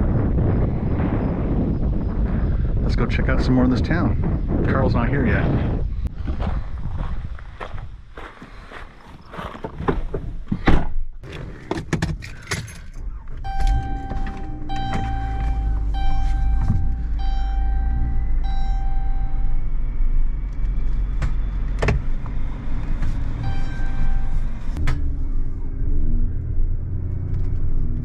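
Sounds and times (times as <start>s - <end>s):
car engine running: 13.1s - 28.0s
car warning chime: 13.4s - 19.7s, 23.4s - 24.6s.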